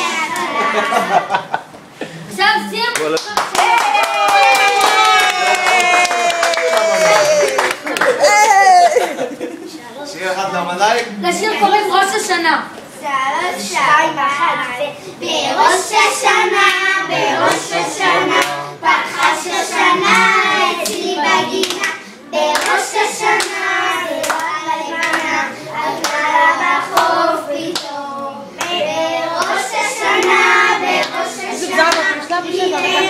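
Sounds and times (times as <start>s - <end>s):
hand claps: 2.9s - 8.2s, 21.6s - 22.8s
children singing together: 15.1s - 33.0s.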